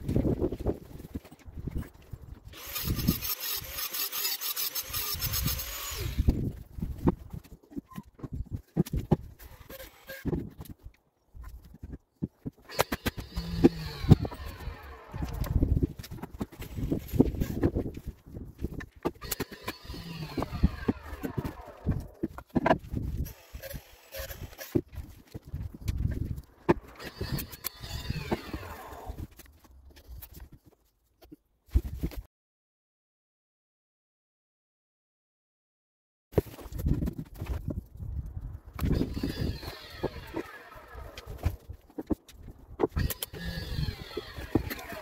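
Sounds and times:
rasping scrape: 2.6 - 8.0, 12.6 - 18.1, 38.8 - 42.2, 42.8 - 45.0
knocks and clatter of tools: 6.3 - 28.7.

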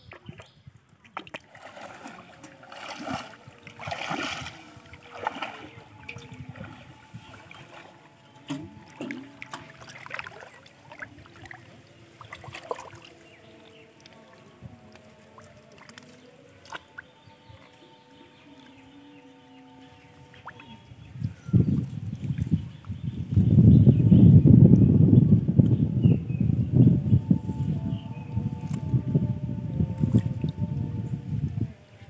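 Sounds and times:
shallow water splashing and sloshing: 0.0 - 23.4.

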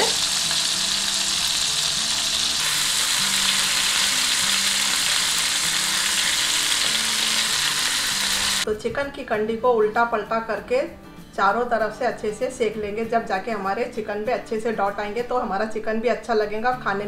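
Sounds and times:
chicken sizzling in hot oil: 0.0 - 8.7.

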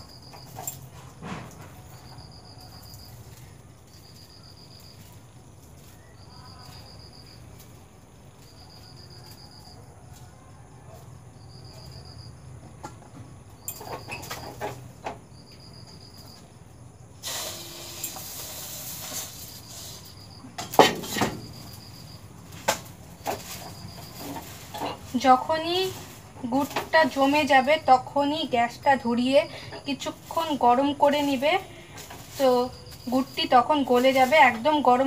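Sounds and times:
pots and utensils clattering: 0.0 - 2.2, 20.6 - 22.0, 22.6 - 27.7
cricket chirping: 0.0 - 35.0
crisp rustling: 21.4 - 35.0.

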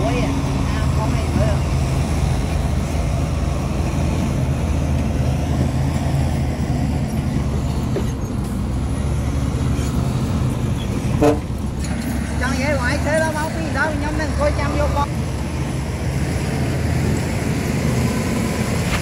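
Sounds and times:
bulldozer diesel engine running: 0.0 - 19.0
vehicle horn toot: 11.2 - 11.5.

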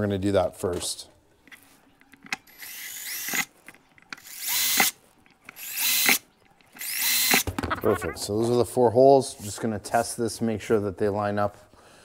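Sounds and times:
cordless drill whining: 2.5 - 3.5, 4.2 - 6.2, 6.8 - 7.4.

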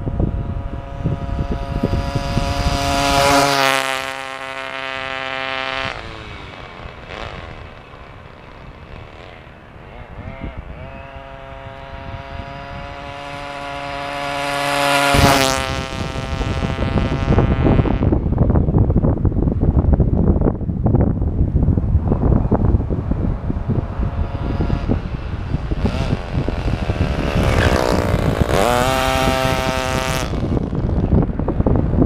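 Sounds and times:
wind rumble on microphone: 0.0 - 32.0
model car engine at high revs: 0.2 - 18.1, 23.7 - 32.0.

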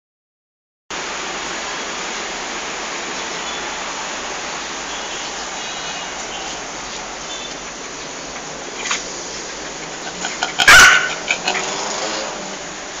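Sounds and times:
steady rushing noise: 0.9 - 13.0.

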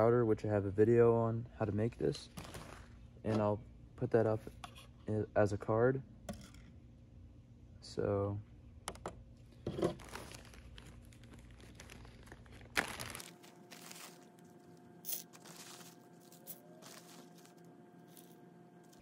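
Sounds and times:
plastic bag crinkling: 9.8 - 19.0.

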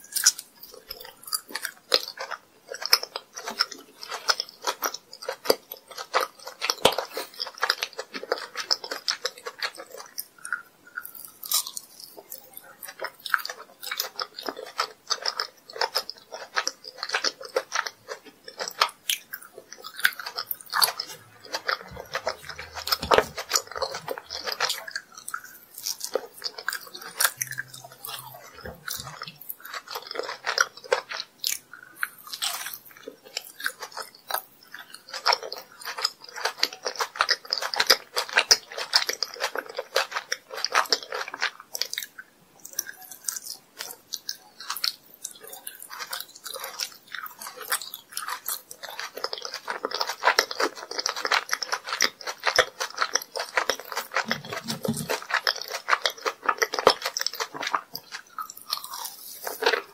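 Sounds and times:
biting and chewing jelly candy: 0.0 - 59.9.

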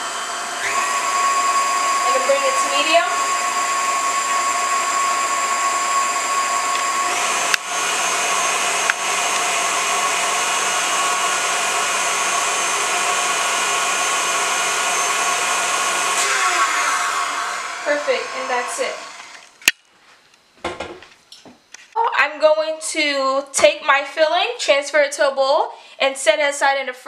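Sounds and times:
stand mixer motor whine: 0.0 - 19.5.

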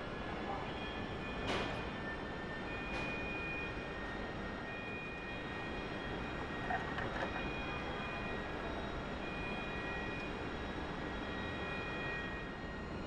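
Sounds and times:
factory machinery hum: 0.0 - 13.0.

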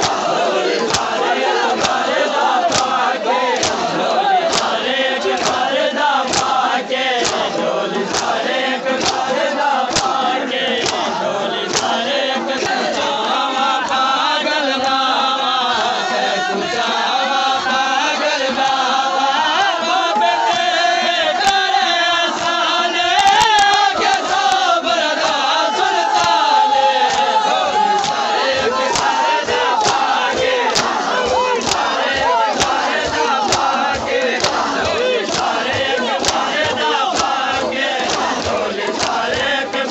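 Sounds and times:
hands slapping chests: 0.0 - 13.2, 21.4 - 21.6, 23.2 - 39.9
men chanting in unison: 0.0 - 39.9.

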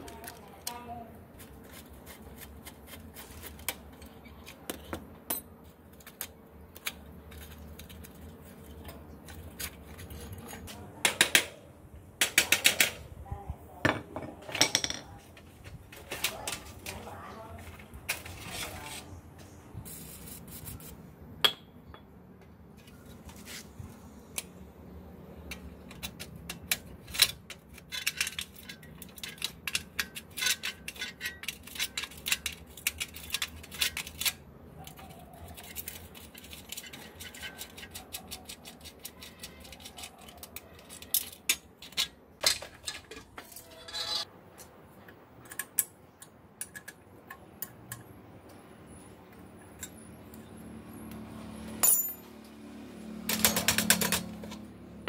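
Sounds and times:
metal tools clicking and clinking: 13.9 - 15.2, 25.5 - 44.3, 49.6 - 50.5, 51.7 - 52.5, 53.2 - 54.6.

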